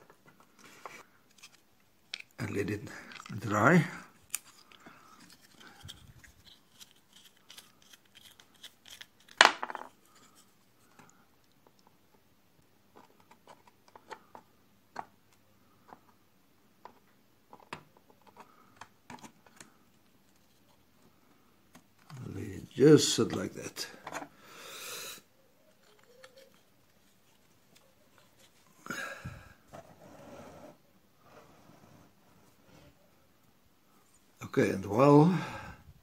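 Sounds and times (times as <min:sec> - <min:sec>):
small parts and tools clicking: 0:04.2 - 0:10.0.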